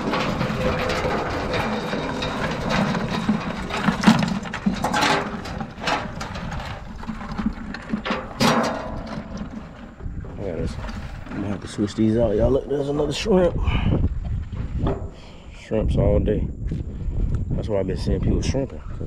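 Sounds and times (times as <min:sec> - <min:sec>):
metal tongs knocking on bucket: 0:00.0 - 0:09.7.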